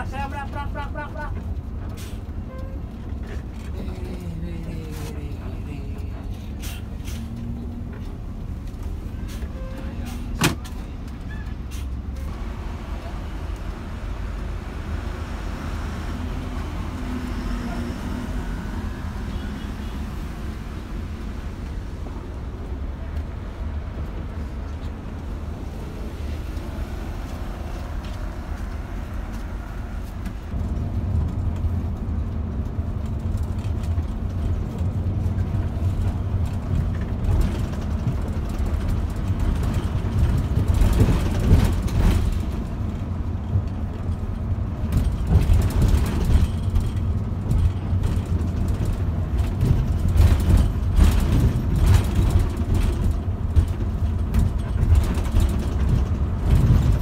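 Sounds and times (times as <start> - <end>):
bus engine low drone: 0.0 - 57.0
road rumble: 0.0 - 57.0
knocks and rattles: 30.4 - 57.0.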